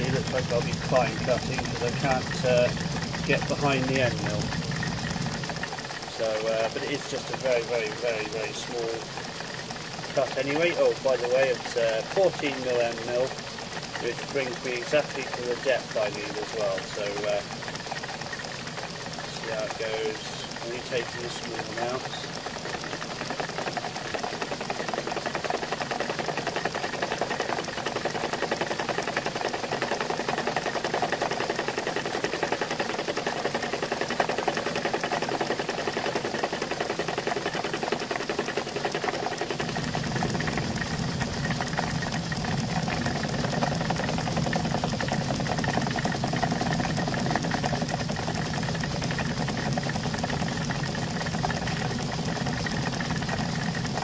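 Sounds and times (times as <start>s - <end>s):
deeper machine hum: 0.0s - 54.0s
end mill cutting metal: 0.0s - 54.0s.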